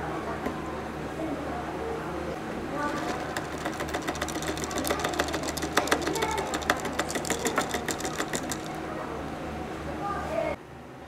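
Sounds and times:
spoon clinking ice in a cup: 0:02.9 - 0:08.8.

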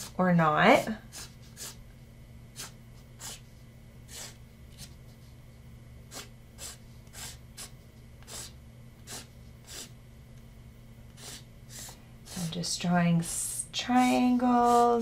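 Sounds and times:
marker scratching on canvas: 0:00.8 - 0:01.8, 0:02.6 - 0:05.0, 0:06.1 - 0:09.9, 0:11.2 - 0:12.6, 0:13.9 - 0:15.0.

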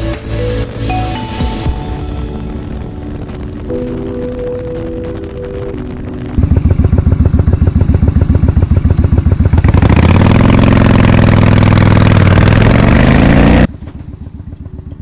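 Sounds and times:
motorcycle engine idling and revving: 0:00.0 - 0:15.0.

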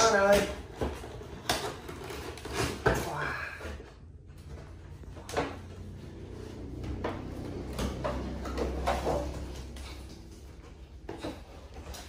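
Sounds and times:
cardboard packaging scraping and rustling: 0:00.0 - 0:03.9.

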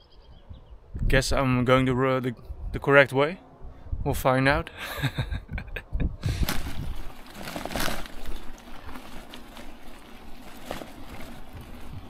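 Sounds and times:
bicycle tyres swishing through grass: 0:06.3 - 0:12.0
bicycle and bags knocking: 0:06.4 - 0:12.0.

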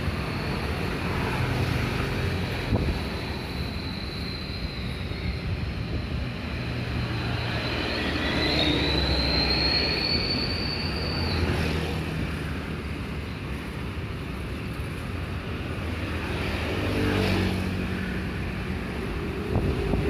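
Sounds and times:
thin high whine: 0:00.0 - 0:12.0
traffic rumble: 0:00.0 - 0:20.0.

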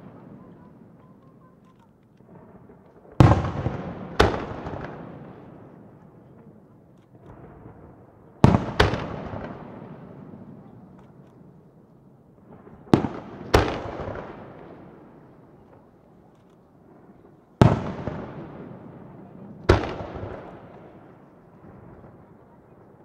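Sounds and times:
firework bangs with echo: 0:02.2 - 0:06.0, 0:07.3 - 0:10.7, 0:12.4 - 0:15.9, 0:17.0 - 0:22.4.

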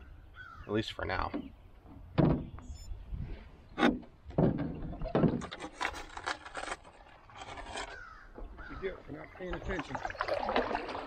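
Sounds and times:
knocks on a canoe: 0:02.2 - 0:02.5, 0:03.8 - 0:05.5
canoe scraping riverbed: 0:03.2 - 0:11.0.

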